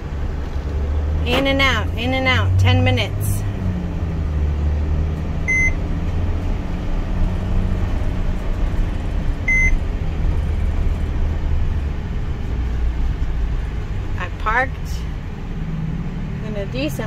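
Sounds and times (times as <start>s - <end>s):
van engine and road hum: 0.0s - 17.0s
high electronic beeps: 5.5s - 5.8s.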